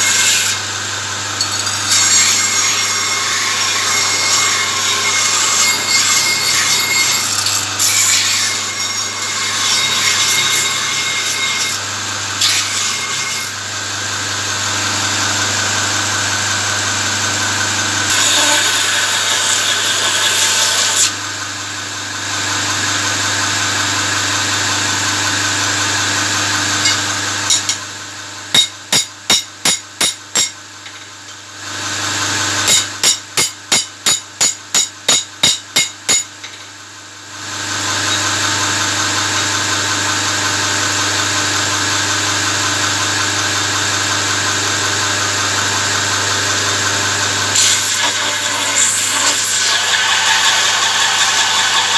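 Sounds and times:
metal grinding rasp: 0.0s - 0.6s, 1.4s - 11.8s, 12.4s - 13.6s, 18.1s - 21.1s, 28.5s - 31.1s, 47.5s - 51.9s
belt grinder motor hum: 14.5s - 21.0s, 37.6s - 51.9s.

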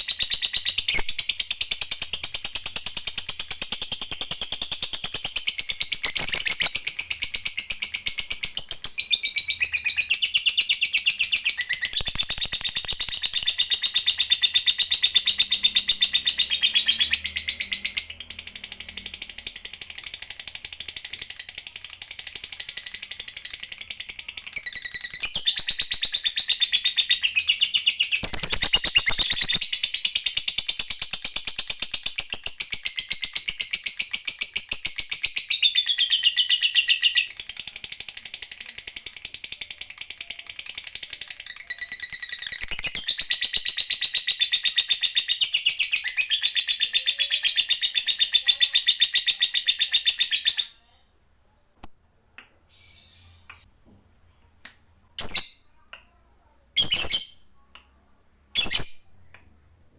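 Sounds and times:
bird chattering trill: 0.1s - 31.0s.

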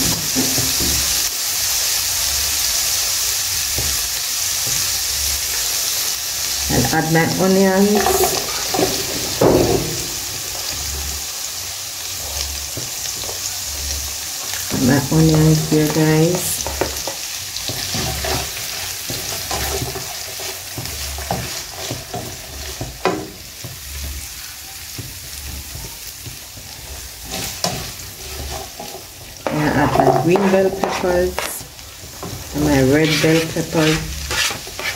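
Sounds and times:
onions sizzling in oil: 0.0s - 34.9s
plastic spatula scraping pan: 32.2s - 34.9s.

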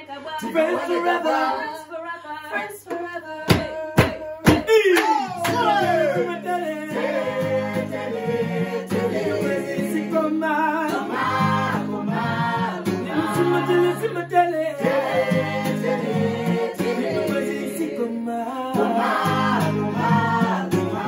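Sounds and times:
voices singing in harmony: 0.0s - 21.0s
strummed acoustic guitar: 5.3s - 21.0s.

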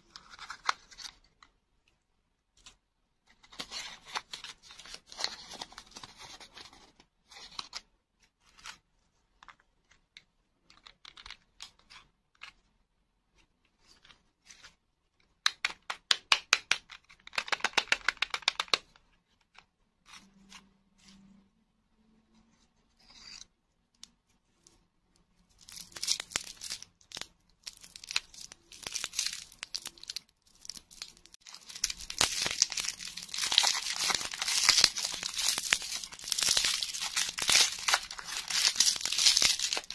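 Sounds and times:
wrapper crinkling and tearing: 25.6s - 39.9s.

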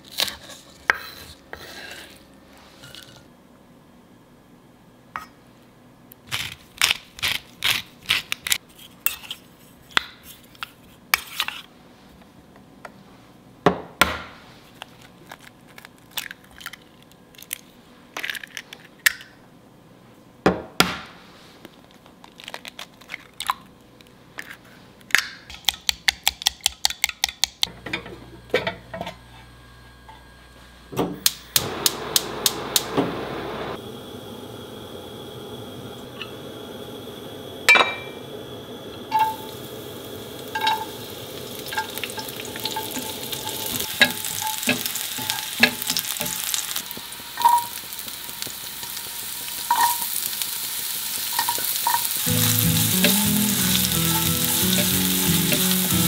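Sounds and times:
gas burner hissing: 31.2s - 56.0s.

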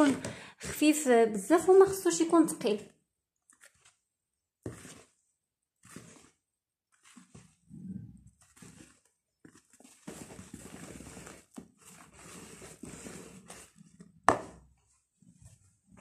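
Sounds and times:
whisk beating batter: 4.6s - 7.6s, 8.3s - 14.2s.

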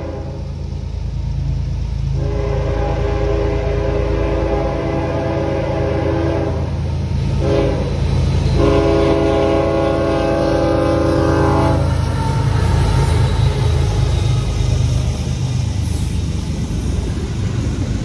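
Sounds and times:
locomotive air horn blasts: 0.0s - 0.5s, 2.2s - 6.7s, 7.4s - 7.9s, 8.5s - 12.0s
low rumble of locomotive: 0.0s - 18.0s.

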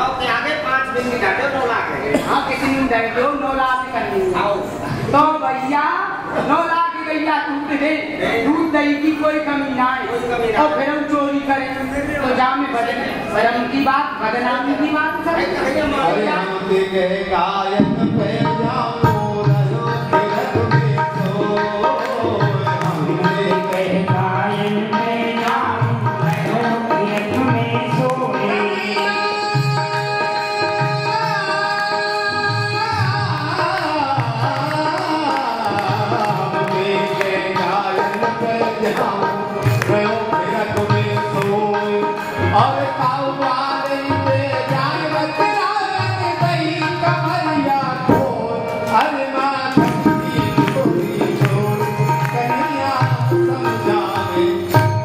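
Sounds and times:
held accompanying notes: 8.0s - 55.0s
person singing: 16.0s - 55.0s
hand drum beating: 17.7s - 28.5s, 49.7s - 55.0s.

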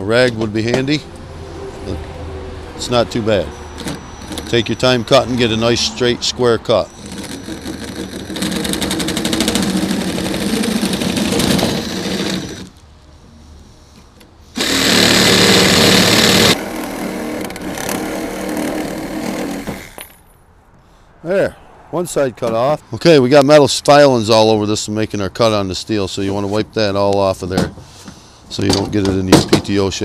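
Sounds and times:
reciprocating saw cutting metal: 6.9s - 12.7s, 14.6s - 20.1s.

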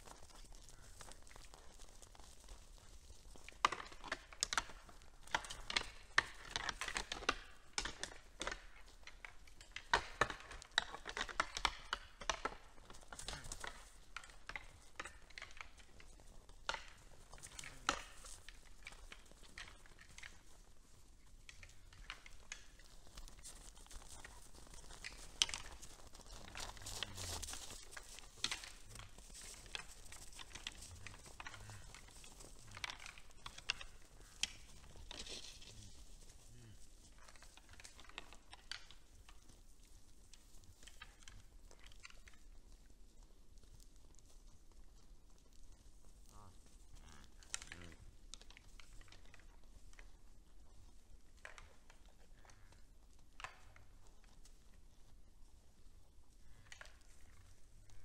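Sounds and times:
hooves on snow: 0.0s - 58.0s
hay rustling and crunching: 22.7s - 37.0s.

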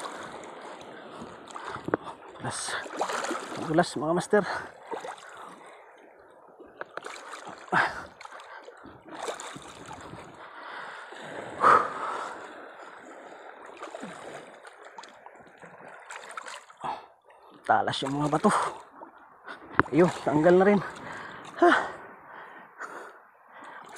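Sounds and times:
sea water sloshing: 0.0s - 23.9s
loud splashes: 2.7s - 3.9s.

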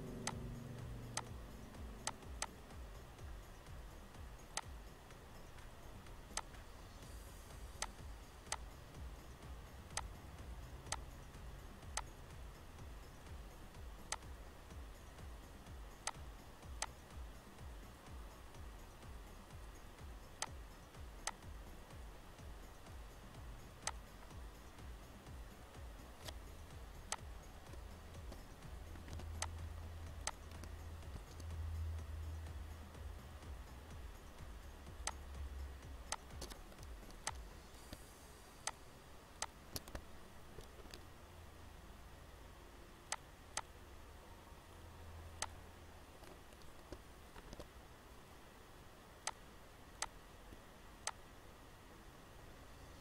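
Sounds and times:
faint background hiss: 0.0s - 53.0s
low steady hum: 0.0s - 53.0s
mouse and keyboard clicks: 1.0s - 1.3s, 2.0s - 2.6s, 6.3s - 6.6s, 7.8s - 8.7s, 16.0s - 16.2s, 27.1s - 29.6s, 30.2s - 31.6s, 36.1s - 38.0s, 39.4s - 41.1s, 46.2s - 47.7s.

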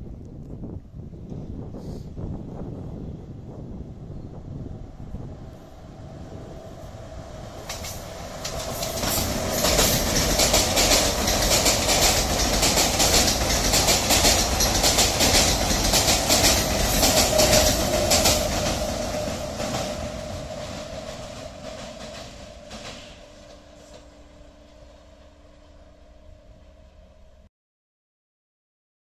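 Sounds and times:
train wheels clattering over rails: 7.6s - 24.4s.

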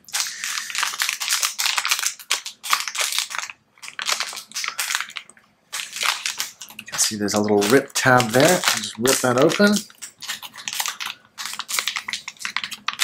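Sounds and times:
anti-static bag crinkling: 0.0s - 13.0s.

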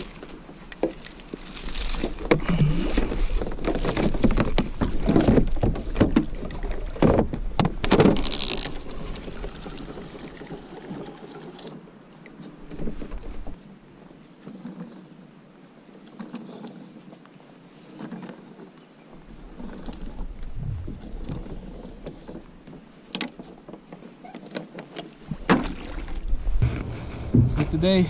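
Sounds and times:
water splashing against kayak: 1.6s - 11.8s, 24.6s - 28.0s.

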